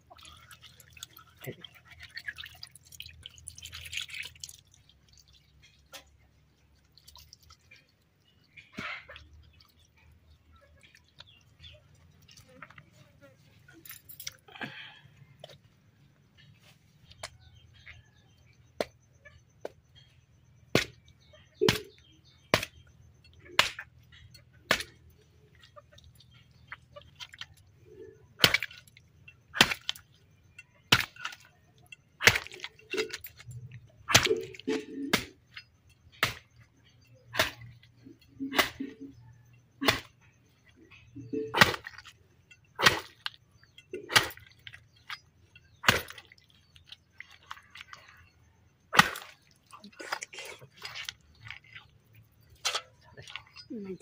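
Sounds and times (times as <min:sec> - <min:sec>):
cleaver chopping through bone: 0:29.6 - 0:30.0, 0:45.8 - 0:46.2.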